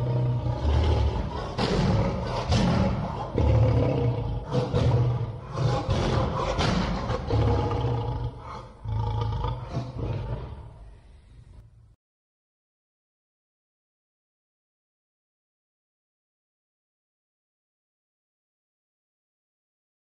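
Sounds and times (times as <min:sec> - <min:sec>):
lion roaring: 0:00.0 - 0:11.0.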